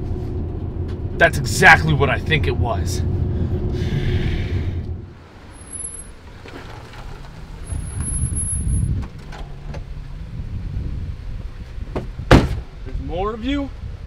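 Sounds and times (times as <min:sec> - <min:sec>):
engine and road rumble in cab: 0:00.0 - 0:14.0.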